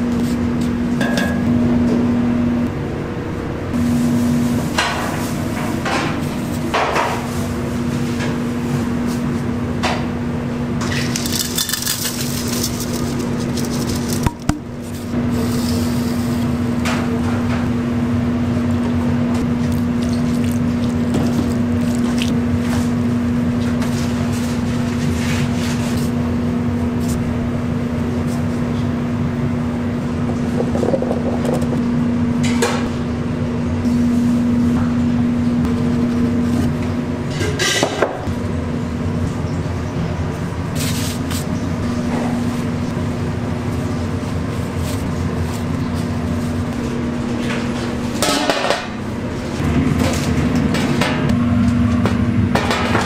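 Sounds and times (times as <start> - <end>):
steady hum: 0.0 - 53.0
utensils and pans clinking: 10.8 - 14.6.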